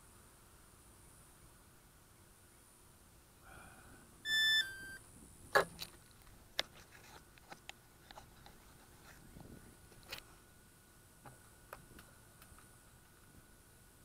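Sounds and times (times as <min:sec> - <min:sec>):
electronic beep dropping in pitch: 0:04.2 - 0:05.0.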